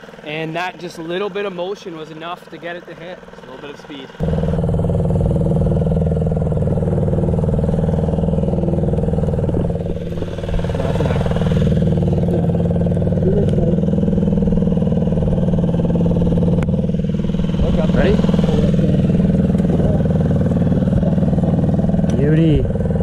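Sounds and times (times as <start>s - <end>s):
outboard motor running: 0.0s - 23.0s.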